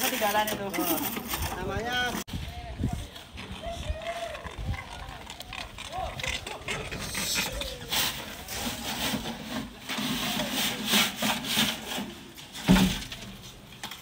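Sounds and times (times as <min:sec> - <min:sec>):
hand tools scraping sand and gravel: 0:00.0 - 0:02.2, 0:05.5 - 0:14.0.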